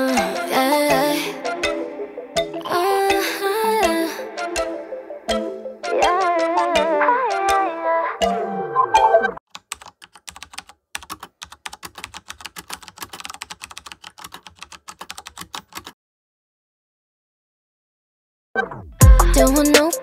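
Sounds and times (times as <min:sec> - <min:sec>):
music: 0:00.0 - 0:09.4, 0:18.8 - 0:20.0
typing on computer keyboard: 0:09.5 - 0:16.0.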